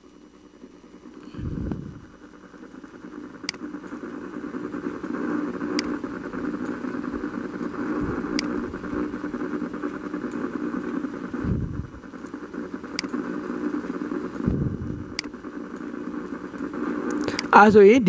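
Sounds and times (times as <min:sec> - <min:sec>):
steady droning noise: 0:00.0 - 0:18.0
faint sharp clicks: 0:12.1 - 0:13.2, 0:15.1 - 0:17.5.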